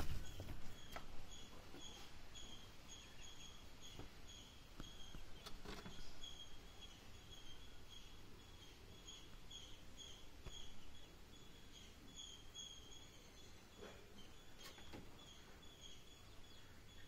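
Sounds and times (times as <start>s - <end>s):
small bird chirping: 0.0s - 17.0s.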